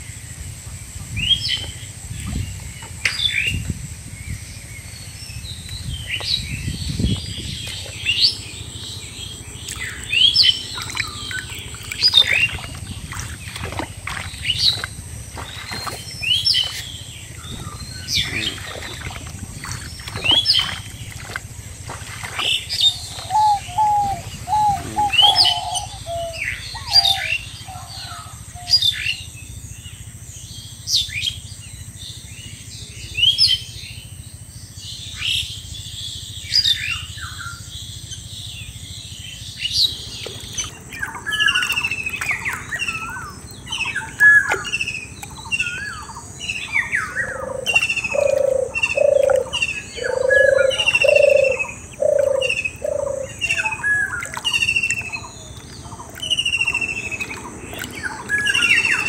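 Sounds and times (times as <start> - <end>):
birds chirping: 4.3 - 29.4, 35.9 - 59.0
low cooing notes: 23.1 - 27.2, 47.2 - 53.4.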